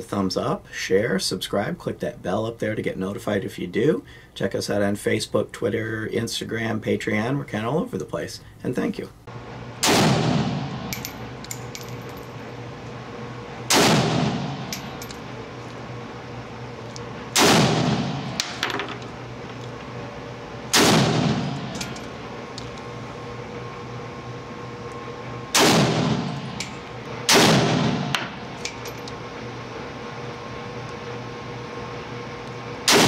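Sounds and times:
gunshots echoing indoors: 9.8s - 10.9s, 13.7s - 14.7s, 17.3s - 18.6s, 20.7s - 21.8s, 25.5s - 26.3s, 27.3s - 28.3s.

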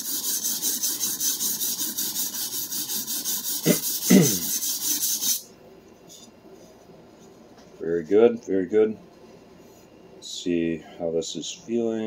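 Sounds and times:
knife scraping on whetstone: 0.0s - 5.4s.

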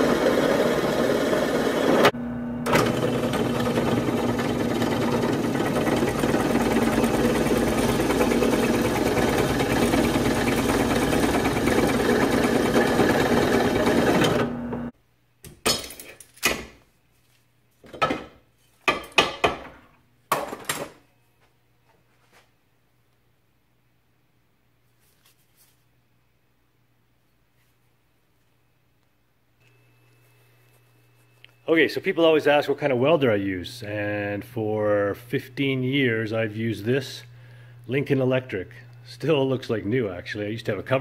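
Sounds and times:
drill press cutting steel: 0.0s - 14.9s.

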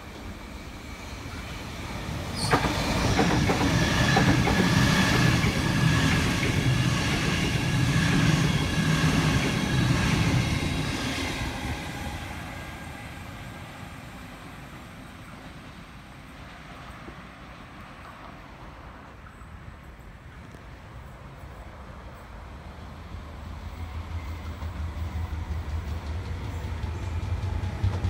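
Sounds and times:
electric train passing: 0.0s - 28.0s
wheels clacking over rail joints: 2.4s - 7.3s.

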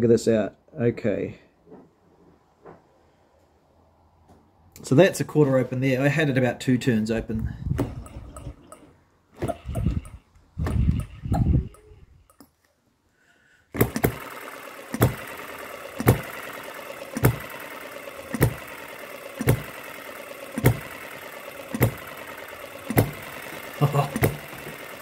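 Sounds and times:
flywheels whirring: 7.8s - 12.4s, 13.8s - 25.0s
model engine firing knocks: 13.8s - 25.0s.

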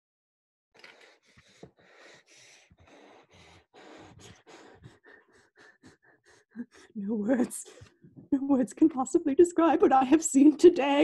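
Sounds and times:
person panting: 0.8s - 8.0s.

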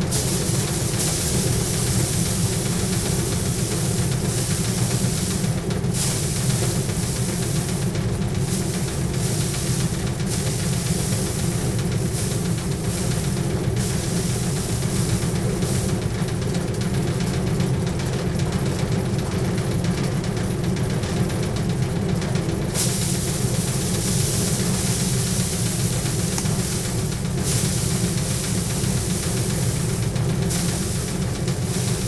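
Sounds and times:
thresher machine hum: 0.0s - 17.8s, 22.6s - 32.0s
rice stalks hissing and rustling: 0.1s - 16.1s, 22.8s - 32.0s.

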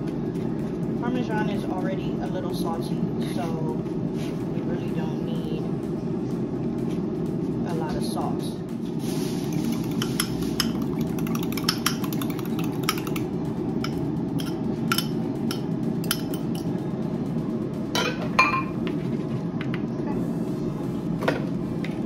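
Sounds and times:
steady low hum: 0.0s - 22.0s
dishes and utensils clinking: 9.3s - 16.7s, 18.0s - 18.8s
dishes clattering: 9.5s - 13.2s, 18.0s - 18.8s.

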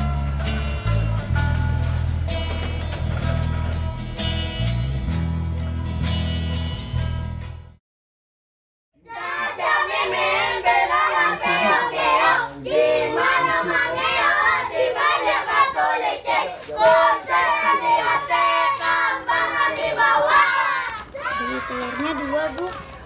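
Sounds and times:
children singing together: 9.0s - 21.4s.

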